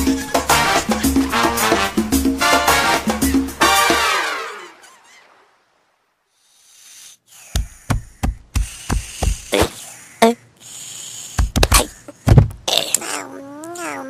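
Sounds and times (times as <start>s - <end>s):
cartoon sharp knocks: 7.5s - 9.7s.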